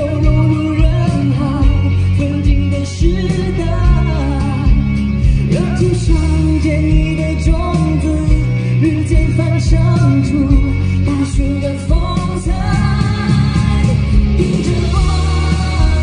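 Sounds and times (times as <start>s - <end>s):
instrumental backing music: 0.0s - 16.0s
man singing into a microphone: 0.0s - 16.0s.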